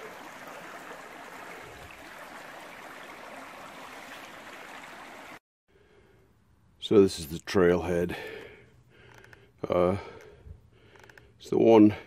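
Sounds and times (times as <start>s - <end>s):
creek running over rocks: 0.0s - 5.4s.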